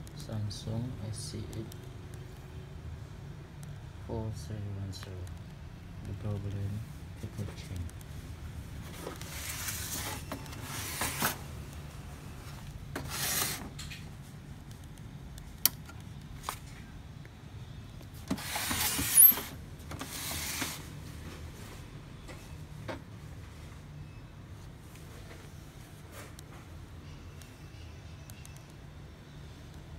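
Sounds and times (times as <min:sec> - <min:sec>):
hands rubbing and scraping printer: 0:13.0 - 0:13.8, 0:18.3 - 0:20.9.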